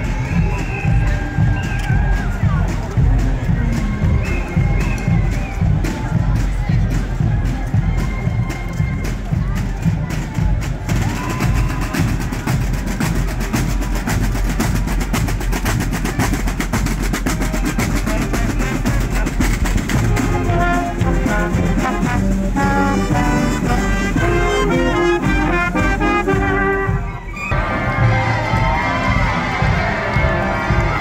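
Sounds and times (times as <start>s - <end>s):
fast drumming: 0.0s - 31.0s
brass tune: 16.0s - 31.0s.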